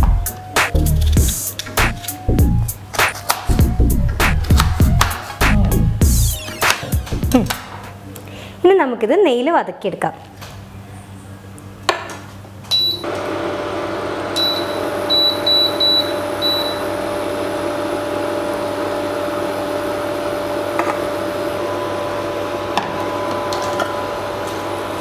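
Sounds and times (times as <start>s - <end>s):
cooktop fan and coil hum: 0.0s - 25.0s
cooktop beeps: 12.7s - 13.1s, 14.4s - 16.9s.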